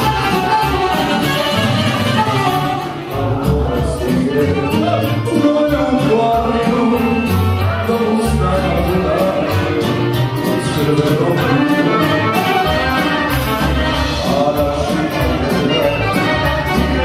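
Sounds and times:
saxophone: 0.0 - 3.3, 9.4 - 17.0
accordion: 0.0 - 17.0
low bass: 0.0 - 17.0
man singing into microphone: 0.0 - 17.0.

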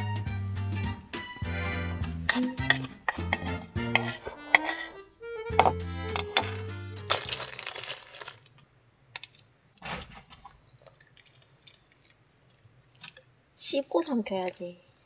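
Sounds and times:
plastic wrapper crinkling and tearing: 7.0 - 11.5.

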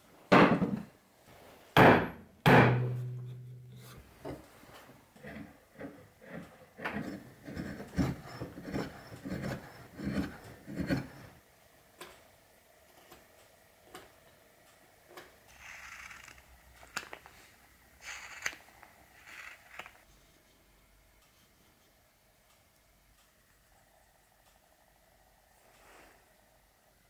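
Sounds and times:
steel blade strokes on wood: 2.6 - 4.0
pencil scratching on wood: 5.2 - 11.4.

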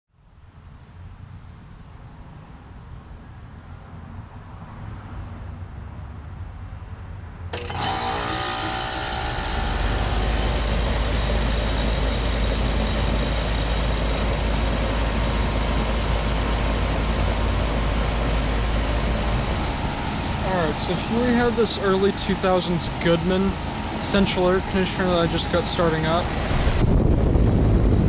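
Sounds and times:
air conditioner running: 7.5 - 28.0
deep compressor hum: 7.6 - 28.0.

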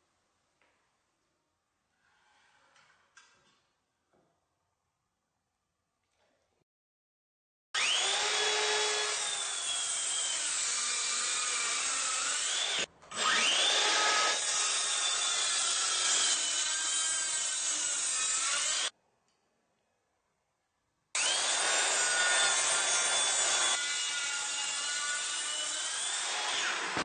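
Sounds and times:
circular saw cutting wood: 7.8 - 18.9, 21.2 - 27.0.

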